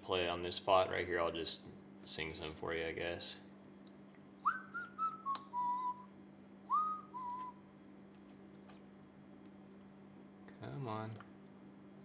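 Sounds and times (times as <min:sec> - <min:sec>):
man whistling a tune: 0:04.4 - 0:07.6.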